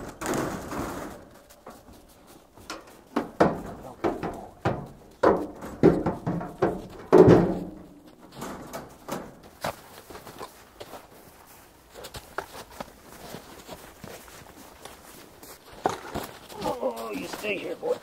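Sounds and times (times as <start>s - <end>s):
goat hooves knocking on metal: 0.2s - 9.8s.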